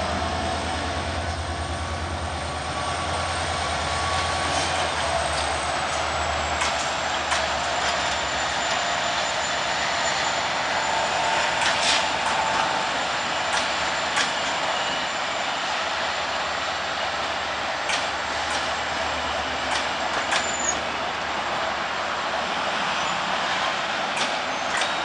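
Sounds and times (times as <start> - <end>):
train wheels rumbling on rail: 0.0 - 25.0
wheels clicking over rail joints: 4.2 - 8.2, 11.5 - 12.8, 13.5 - 14.6, 17.8 - 18.8, 19.6 - 20.9, 24.0 - 25.0.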